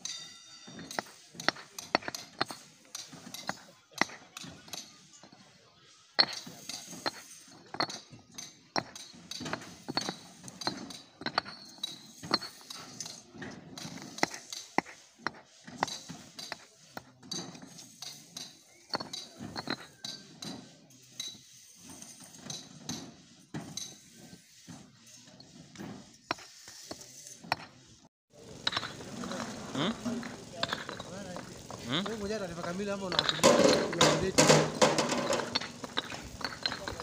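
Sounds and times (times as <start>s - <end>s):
paving blocks clinking together: 0.0s - 37.0s.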